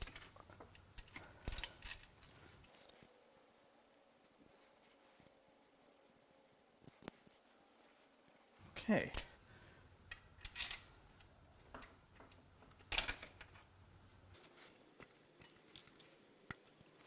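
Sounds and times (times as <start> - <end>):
metal parts and tools clinking: 0.0 - 3.2, 10.1 - 13.7, 14.3 - 17.0.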